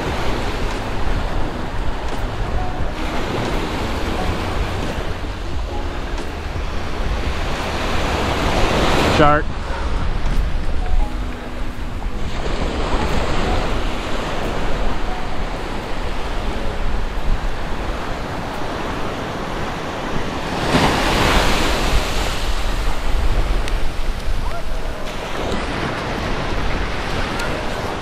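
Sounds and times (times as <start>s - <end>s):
ocean surf on sandy beach: 0.0s - 28.0s
wind buffeting microphone: 0.0s - 28.0s.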